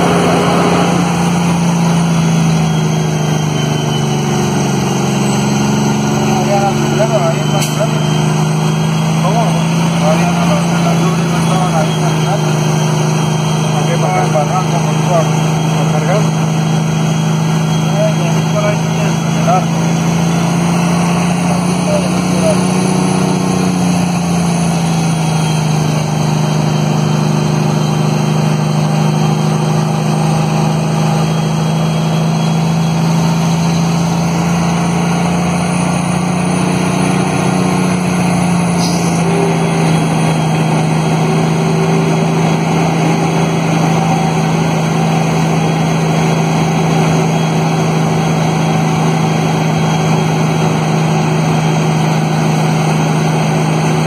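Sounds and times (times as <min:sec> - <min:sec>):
diesel engine braking drone: 0:00.0 - 0:54.0.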